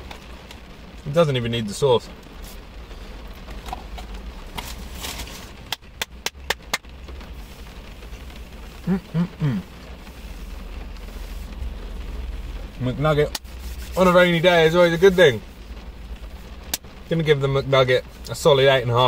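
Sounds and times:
car cabin hum: 0.0s - 19.0s
person clapping: 5.7s - 6.8s.

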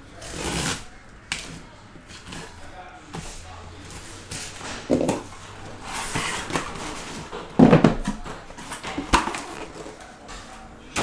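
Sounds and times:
cardboard scraping: 0.1s - 10.0s
cardboard thumps: 6.0s - 9.8s.

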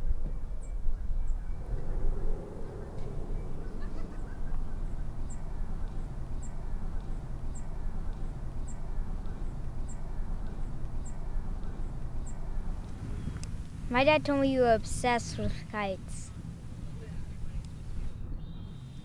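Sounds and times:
wind rumble: 0.0s - 19.0s.

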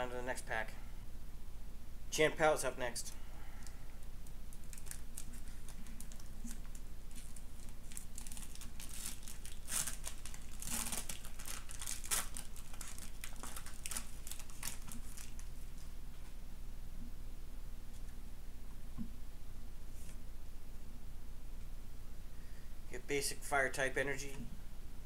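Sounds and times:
foil wrapper tearing and crinkling: 4.5s - 15.5s.

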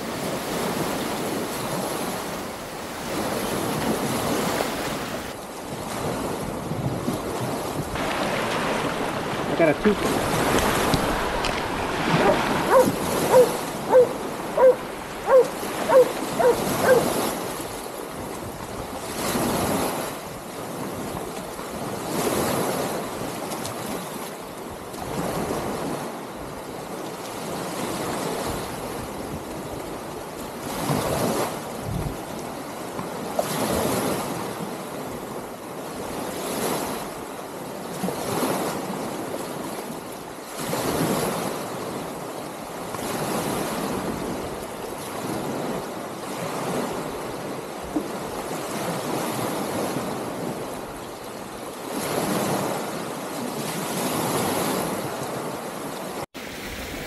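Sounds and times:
wind on microphone: 0.0s - 24.0s, 27.5s - 32.4s
small waves breaking on sand: 0.0s - 57.0s.

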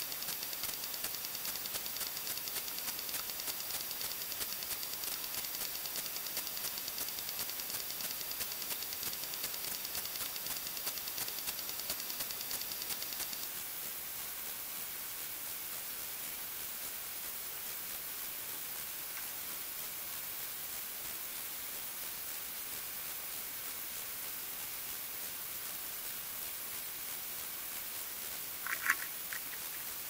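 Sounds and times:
rapid ticking: 0.0s - 13.7s, 20.4s - 30.0s
recording hiss: 0.0s - 30.0s.

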